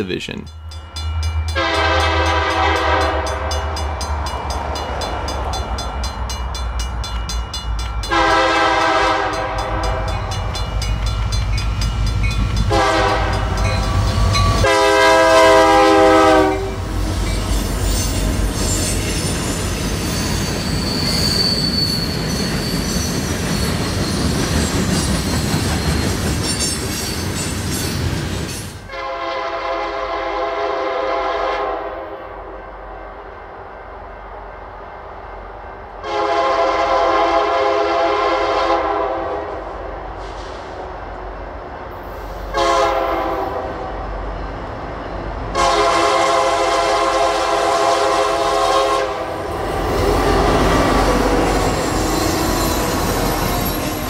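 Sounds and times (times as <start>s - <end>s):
train wheels and cars rolling: 0.0s - 29.0s, 47.8s - 54.0s
locomotive air horn: 1.6s - 3.6s, 8.1s - 10.2s, 12.7s - 13.6s, 14.6s - 16.9s, 28.9s - 32.2s, 36.0s - 39.5s, 42.5s - 43.8s, 45.5s - 49.3s.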